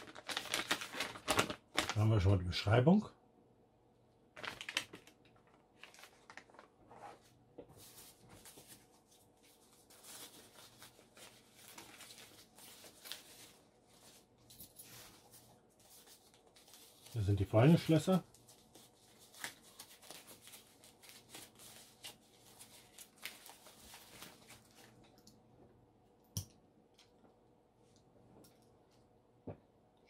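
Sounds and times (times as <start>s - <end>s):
packaging rustling and crinkling: 0.0s - 2.1s, 4.4s - 25.2s.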